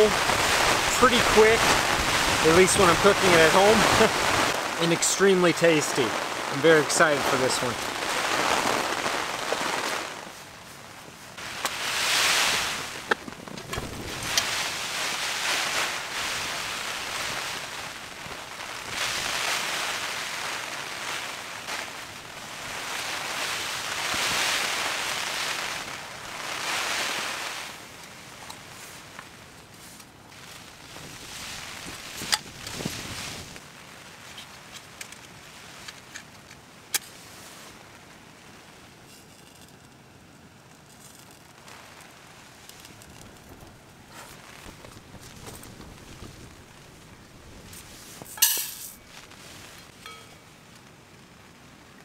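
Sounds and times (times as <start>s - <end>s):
wind and rain against tent: 0.0s - 52.0s
match strike: 11.4s - 16.3s
metal pans clinking: 48.3s - 49.0s.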